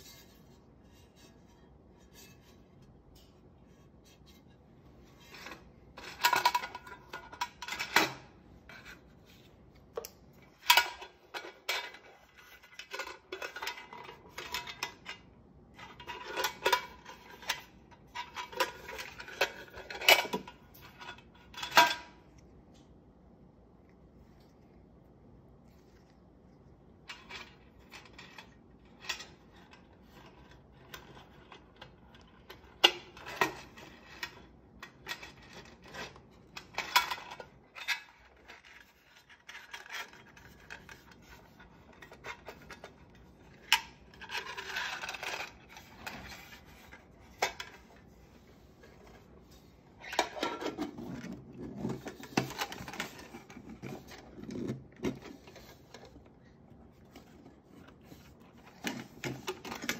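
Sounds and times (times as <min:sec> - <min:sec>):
rubbing and scraping: 0:00.0 - 0:09.9, 0:35.1 - 0:59.9.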